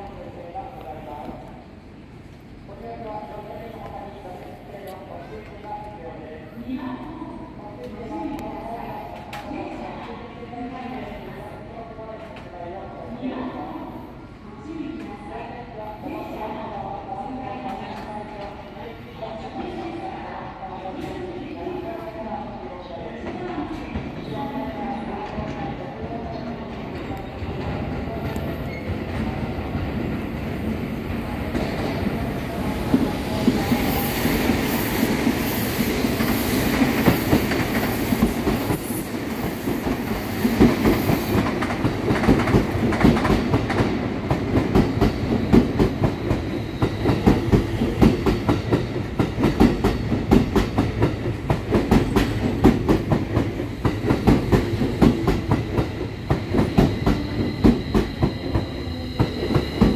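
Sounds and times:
electric train rolling past: 0:21.9 - 0:59.9.

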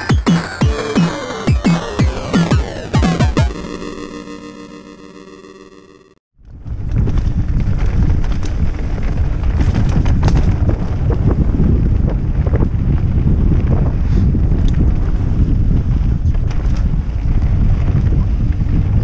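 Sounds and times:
bike clicks and rattles: 0:06.4 - 0:19.0
wind buffeting microphone: 0:06.4 - 0:19.0.

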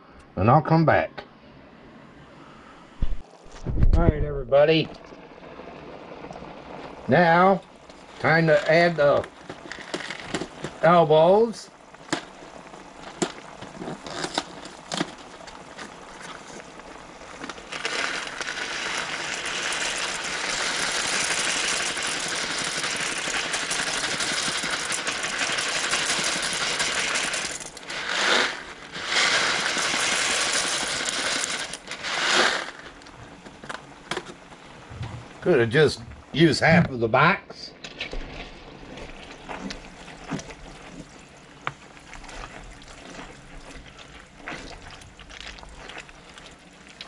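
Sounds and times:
dry pasta rattling into a pot: 0:08.2 - 0:10.8, 0:17.4 - 0:33.0.

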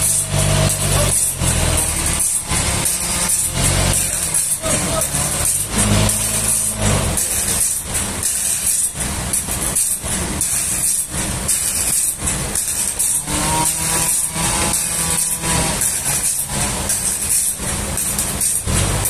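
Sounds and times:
forklift engine running: 0:00.0 - 0:19.0.

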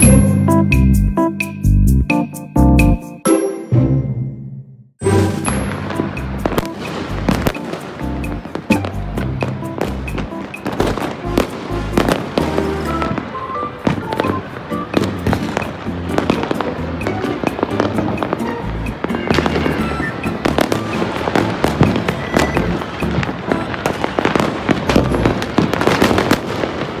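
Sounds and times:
music: 0:00.0 - 0:26.0
fireworks bangs and cracks: 0:05.4 - 0:27.0.

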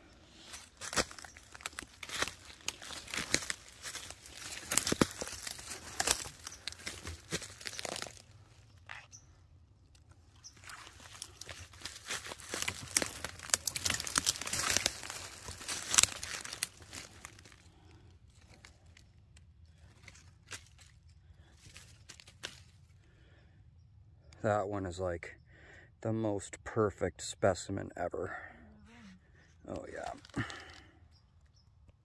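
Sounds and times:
footsteps crunching through dry leaves: 0:00.2 - 0:08.5, 0:10.4 - 0:19.1, 0:19.7 - 0:22.8.

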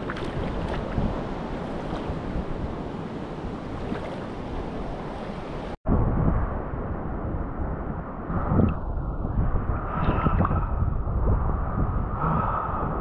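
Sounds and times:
seawater sloshing and lapping: 0:00.0 - 0:02.3
wind noise: 0:00.0 - 0:13.0.

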